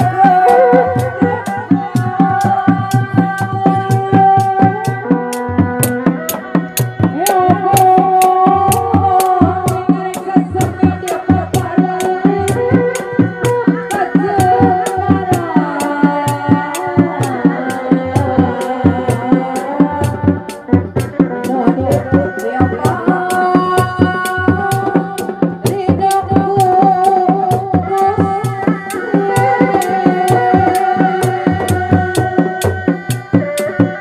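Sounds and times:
held bending melody line: 0:00.0 - 0:11.2
frame drums beating: 0:00.0 - 0:34.0.

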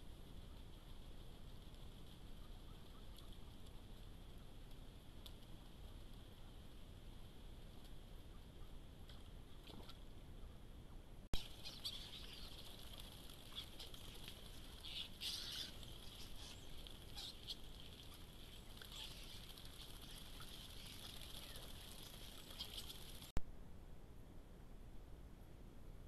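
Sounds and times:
wing flutters: 0:00.0 - 0:10.1, 0:11.4 - 0:23.4
starlings chattering: 0:11.4 - 0:23.3.

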